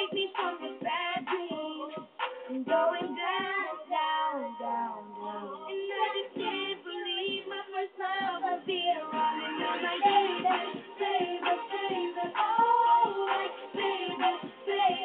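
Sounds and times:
music: 0:00.0 - 0:15.0
high child-like singing voice: 0:02.7 - 0:07.4.

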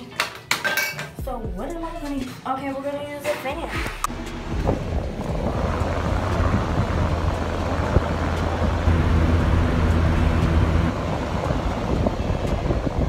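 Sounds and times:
electric fan wind on microphone: 0:03.8 - 0:13.0.

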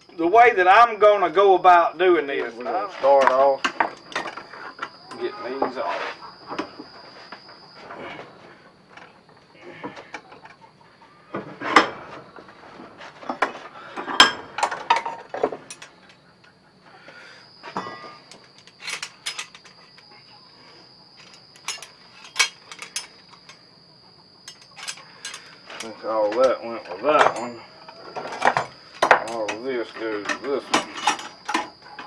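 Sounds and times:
steel trap parts clanking: 0:03.1 - 0:05.8, 0:17.7 - 0:20.0, 0:21.2 - 0:23.6, 0:24.4 - 0:32.0.

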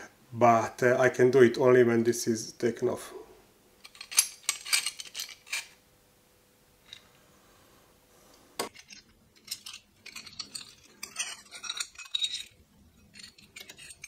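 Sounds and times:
metal parts clinking and rattling: 0:03.8 - 0:05.8, 0:08.7 - 0:14.0.

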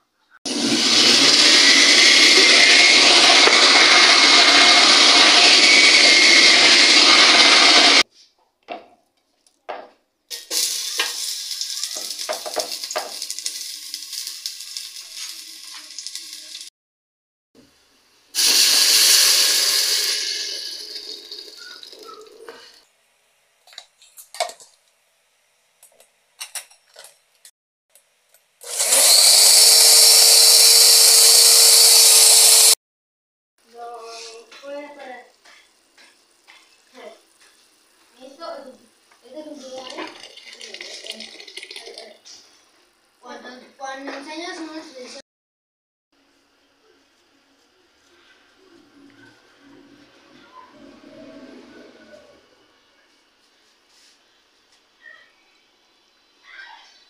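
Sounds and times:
blender running: 0:00.5 - 0:08.0, 0:10.3 - 0:14.9, 0:18.4 - 0:21.8, 0:28.6 - 0:32.8.

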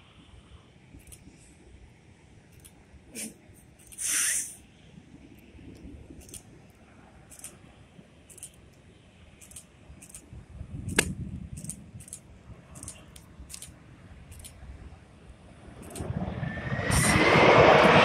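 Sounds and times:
distant jet rumble: 0:09.3 - 0:18.0
sharp click: 0:09.4 - 0:12.2, 0:12.8 - 0:14.6.

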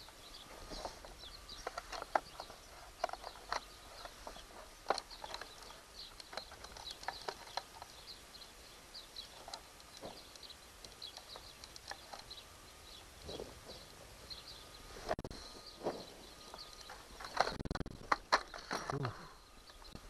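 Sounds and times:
small birds chirping: 0:00.0 - 0:20.0
battery and plastic connectors clicking: 0:01.5 - 0:08.2, 0:09.1 - 0:12.4.

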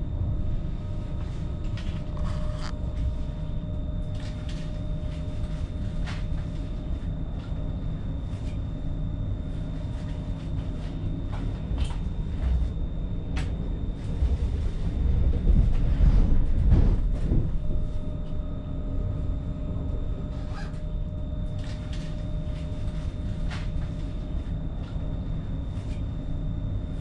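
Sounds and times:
faint steady whine: 0:00.0 - 0:27.0
train low rumble: 0:00.0 - 0:27.0.

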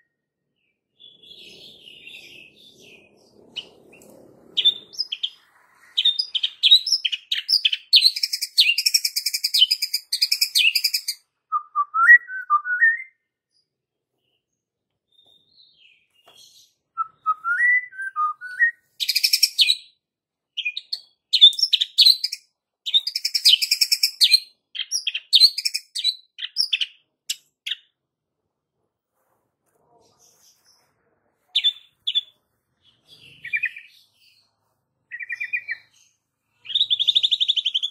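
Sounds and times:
bird singing trills and warbles: 0:00.0 - 0:11.2, 0:20.6 - 0:27.9, 0:31.6 - 0:37.9.

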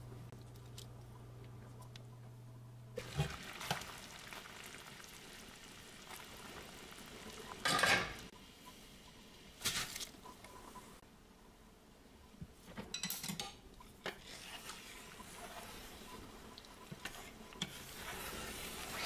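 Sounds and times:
food sizzling in a frying pan: 0:03.0 - 0:08.4
utensil scraping a pan: 0:14.0 - 0:16.2, 0:16.8 - 0:19.0.

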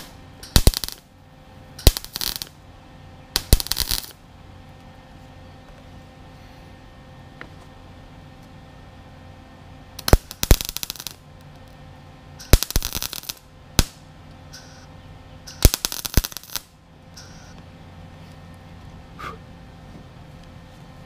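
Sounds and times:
welding arc crackling: 0:00.0 - 0:01.2, 0:01.8 - 0:02.6, 0:03.3 - 0:04.2, 0:10.0 - 0:17.6.

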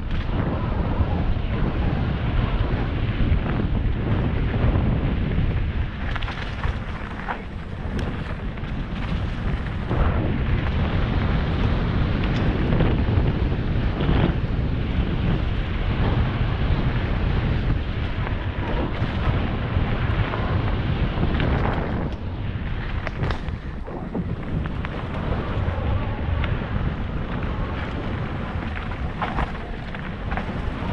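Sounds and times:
steady low rumble: 0:00.0 - 0:30.9
wind buffeting microphone: 0:00.0 - 0:30.9
bike knocks and rattles: 0:05.2 - 0:13.3.

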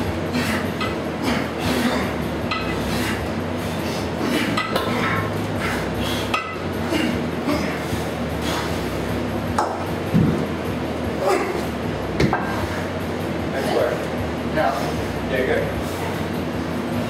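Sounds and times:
steady low hum: 0:00.0 - 0:17.0
kettlebells clinking and knocking: 0:04.5 - 0:04.9.

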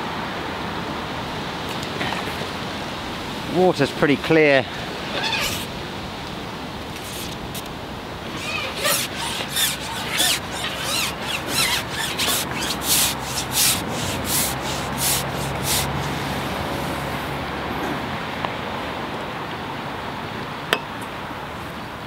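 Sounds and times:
fishing pole swishing through hands: 0:07.0 - 0:07.7, 0:08.3 - 0:16.4.

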